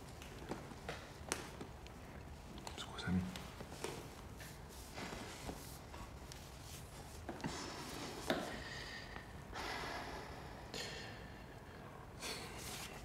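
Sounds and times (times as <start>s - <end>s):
soft breaths and sighs: 0.4s - 13.0s.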